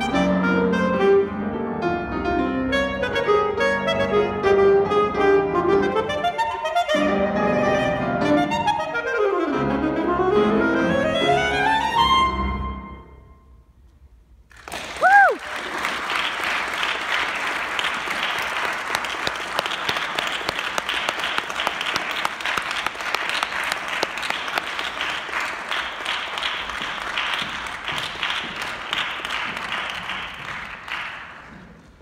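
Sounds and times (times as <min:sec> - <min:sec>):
audience applauding: 0:14.5 - 0:32.0.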